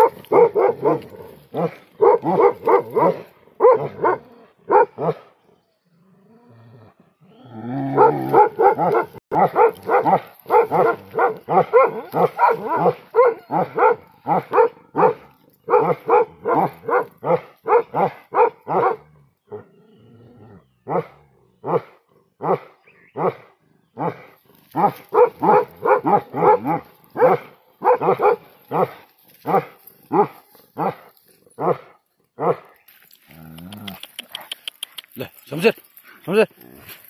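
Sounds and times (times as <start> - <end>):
dog barking: 0.0 - 5.3, 7.9 - 19.1, 20.9 - 24.2, 24.8 - 31.0, 31.6 - 32.7.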